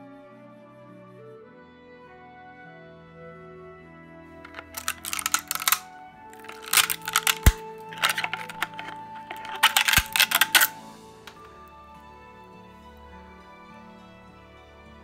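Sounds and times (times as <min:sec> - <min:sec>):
quiet background music: 0:00.0 - 0:15.0
plastic crackling and snapping: 0:04.5 - 0:05.8, 0:06.4 - 0:11.5.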